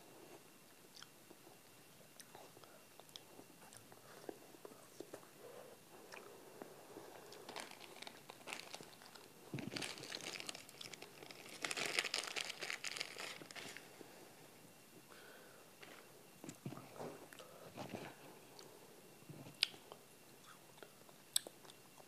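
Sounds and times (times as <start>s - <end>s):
plastic wrapper crinkling: 7.4s - 13.9s.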